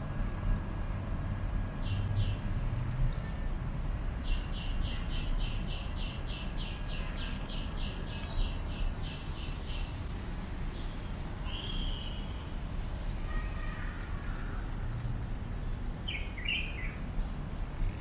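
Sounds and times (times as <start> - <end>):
steady low rumble: 0.0 - 18.0
high hiss: 8.9 - 14.3.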